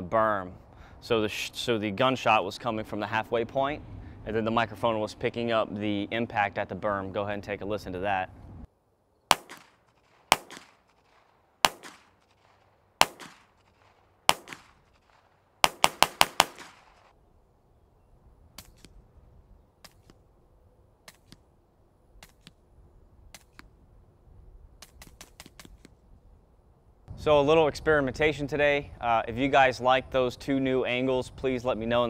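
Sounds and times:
distant suppressed pistol shots: 0:09.3 - 0:17.1
faint sharp cracks: 0:09.3 - 0:17.1, 0:18.5 - 0:19.0, 0:19.8 - 0:20.2, 0:21.0 - 0:21.5, 0:22.2 - 0:22.6, 0:23.3 - 0:23.7, 0:24.8 - 0:26.0.

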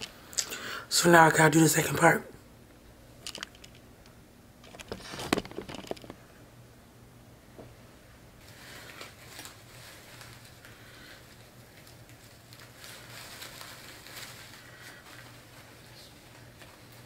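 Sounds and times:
rustling and handling noises: 0:03.2 - 0:06.4, 0:08.4 - 0:17.0.

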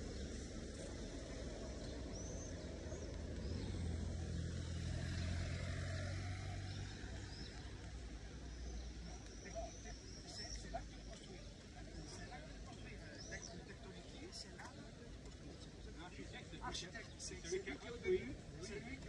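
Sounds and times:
vehicle engine passing by: 0:02.5 - 0:08.1.

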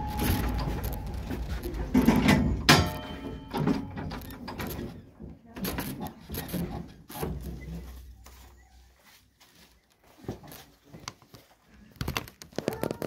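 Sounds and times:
low railway engine rumble: 0:00.0 - 0:03.5.

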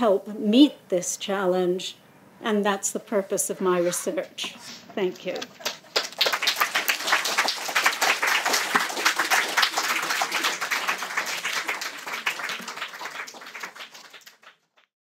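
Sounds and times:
audience applauding: 0:05.4 - 0:14.9.

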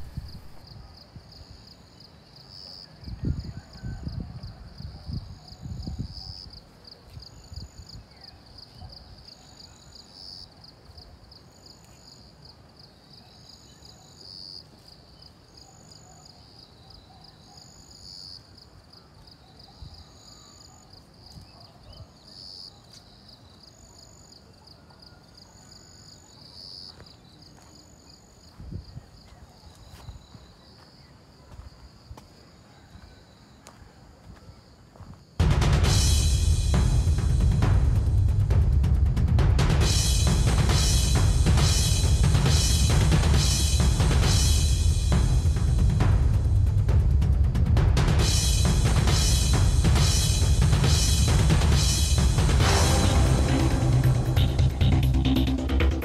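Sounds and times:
low rumbles: 0:00.0 - 0:00.6, 0:35.4 - 0:56.0
higher insect call: 0:00.0 - 0:35.1
insects trilling: 0:00.1 - 0:35.1.

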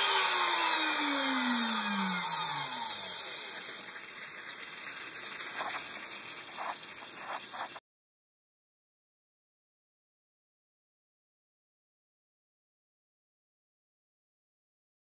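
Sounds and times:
router spinning down whine: 0:00.0 - 0:05.9.

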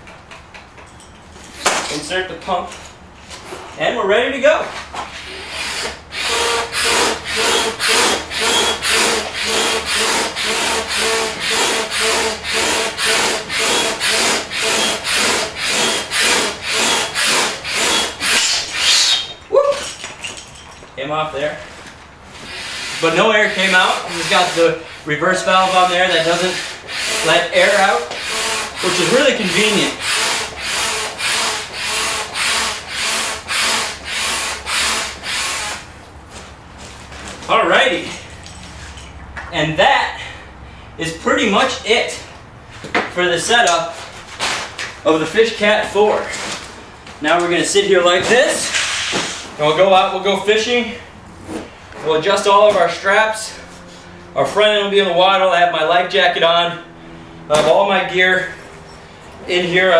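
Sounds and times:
hand pump whooshing air: 0:05.1 - 0:20.0, 0:22.3 - 0:35.9, 0:48.6 - 0:49.6.

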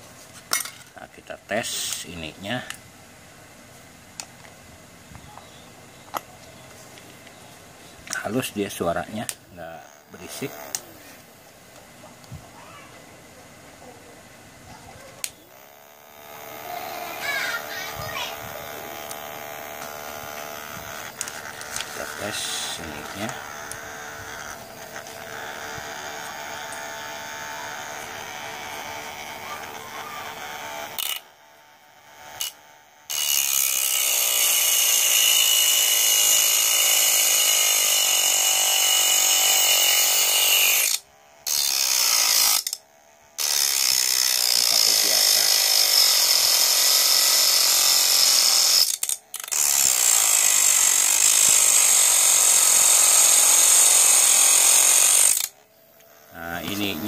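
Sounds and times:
small motor whining: 0:04.2 - 0:57.0.

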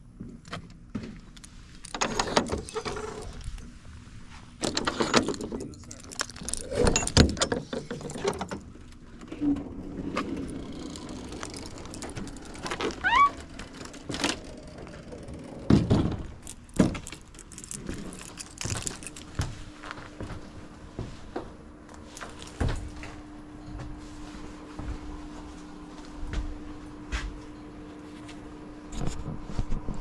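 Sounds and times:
keys jangling: 0:04.7 - 0:08.6, 0:16.4 - 0:19.4
rising squeak: 0:10.6 - 0:14.0.

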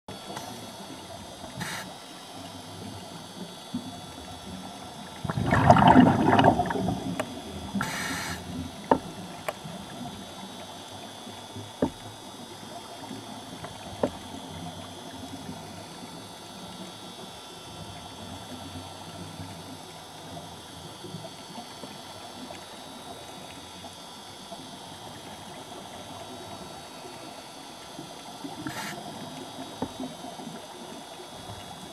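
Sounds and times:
faint hum: 0:00.1 - 0:31.9
underwater hiss: 0:00.3 - 0:02.8, 0:05.2 - 0:09.8, 0:28.4 - 0:31.0.

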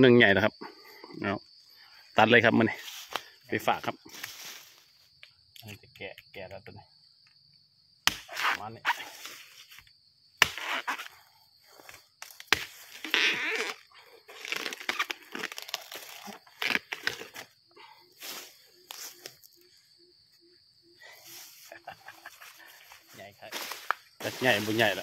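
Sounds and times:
machete strikes on bamboo: 0:08.0 - 0:08.7, 0:10.4 - 0:11.0, 0:11.9 - 0:12.8
bamboo crunching and tearing: 0:11.8 - 0:17.6.

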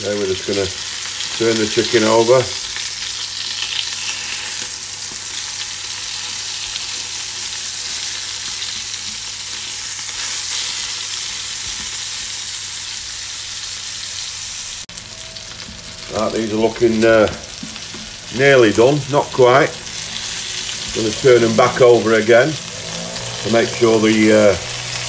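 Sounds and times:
chicken sizzling in butter: 0:00.0 - 0:25.0.

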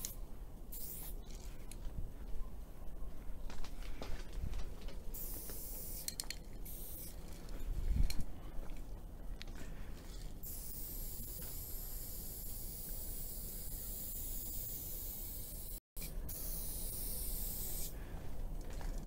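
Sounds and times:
spray can hissing: 0:00.0 - 0:01.2, 0:05.2 - 0:07.2, 0:10.4 - 0:17.9.

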